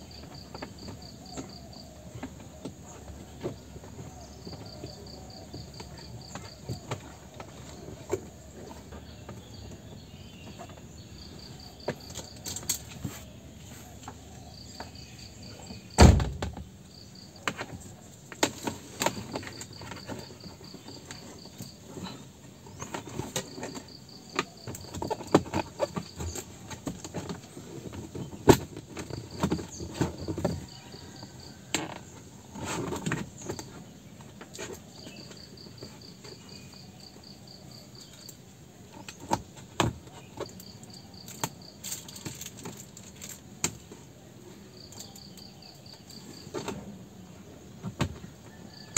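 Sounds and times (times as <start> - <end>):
cricket chirping: 0.0 - 48.9
loud thump: 16.0 - 16.6.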